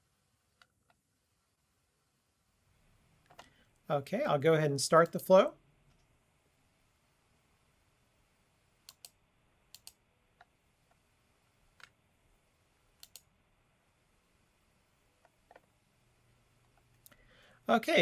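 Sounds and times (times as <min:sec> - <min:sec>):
faint computer mouse clicks: 0:08.8 - 0:11.0, 0:13.0 - 0:13.3.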